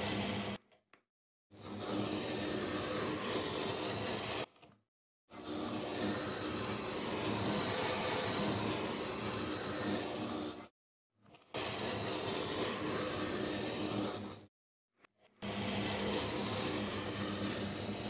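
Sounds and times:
hand tools scraping sand: 5.3s - 10.7s.

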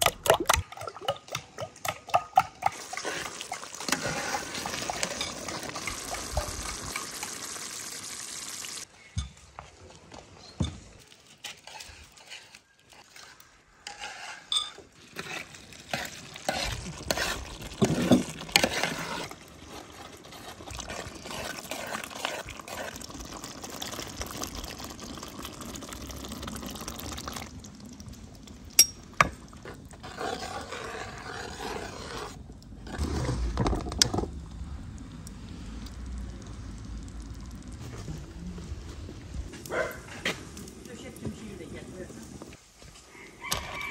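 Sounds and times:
spoon stirring sauce in a pot: 0.5s - 7.2s, 15.0s - 25.8s
egg poured into sauce: 20.6s - 28.8s
metal clinks against pot: 28.8s - 29.0s.

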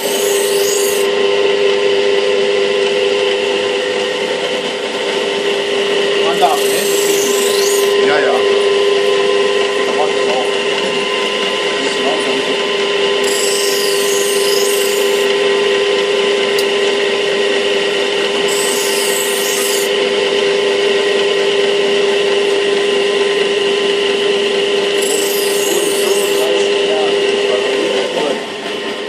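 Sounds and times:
knife blade grinding hiss: 0.0s - 1.1s, 6.4s - 8.0s, 13.2s - 15.3s, 18.5s - 19.9s, 25.0s - 26.5s
grinding wheel humming: 0.0s - 29.0s.

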